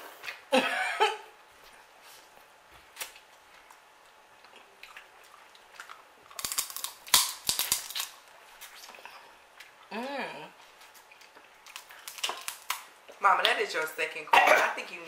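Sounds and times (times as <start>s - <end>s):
crab shell cracking between teeth: 6.3s - 8.2s, 11.3s - 12.9s.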